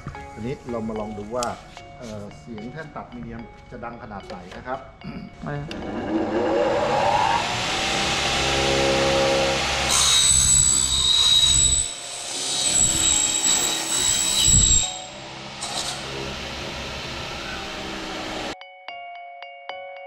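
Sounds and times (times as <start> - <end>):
saw blade humming: 5.8 - 18.6
saw screeching through metal: 5.8 - 18.6.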